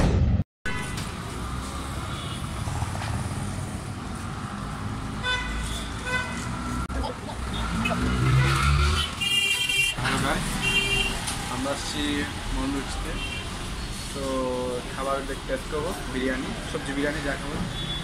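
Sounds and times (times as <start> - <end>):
vehicle horn: 0.7 - 1.1, 5.2 - 6.7, 7.5 - 10.0, 10.6 - 11.2
hum of passing vehicles: 1.0 - 9.3, 10.0 - 17.7.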